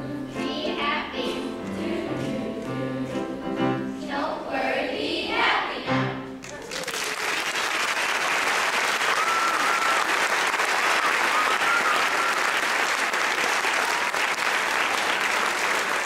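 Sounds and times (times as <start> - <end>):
audience applauding: 6.4 - 16.0.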